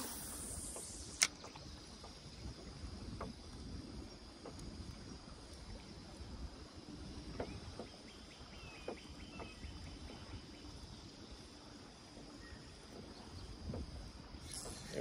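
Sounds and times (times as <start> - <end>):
faint ticks: 0.0 - 6.2
lake water wash: 0.0 - 13.3
wind: 0.0 - 15.0.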